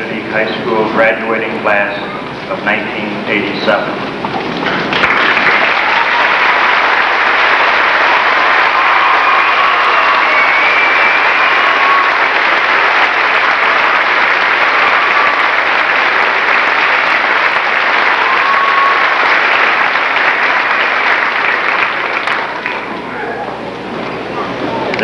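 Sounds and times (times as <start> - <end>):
large audience applauding: 4.4 - 23.4.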